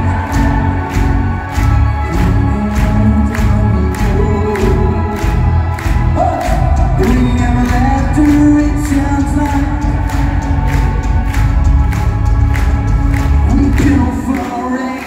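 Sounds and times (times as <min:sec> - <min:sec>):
man singing long notes: 0:00.0 - 0:11.4
live rock band playing: 0:00.0 - 0:14.8
steady drum beat: 0:00.0 - 0:14.8
heavy bass: 0:00.0 - 0:14.9.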